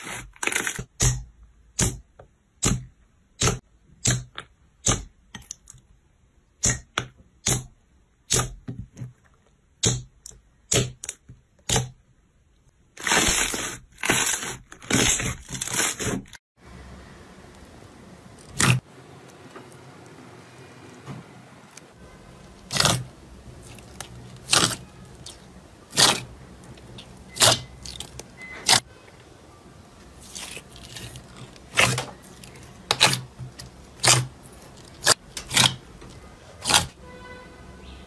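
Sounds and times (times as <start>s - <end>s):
slime wet squelches: 21.7s - 28.8s, 30.2s - 36.9s.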